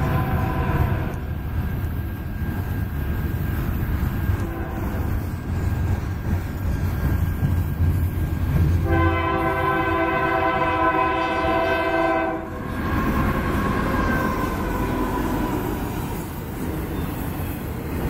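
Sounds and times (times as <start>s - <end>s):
locomotive air horn chord: 0.0s - 1.2s, 4.4s - 5.0s, 8.8s - 14.1s
freight train rumbling past: 0.0s - 18.0s.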